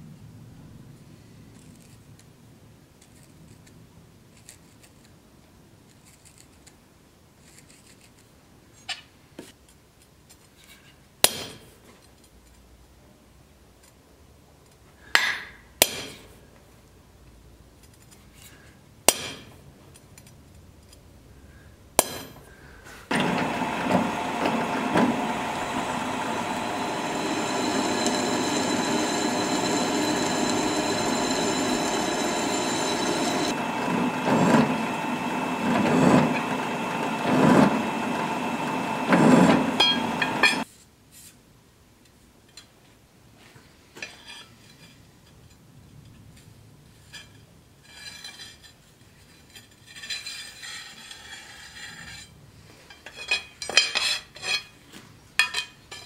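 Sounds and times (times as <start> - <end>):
drill press whining: 23.1 - 40.6.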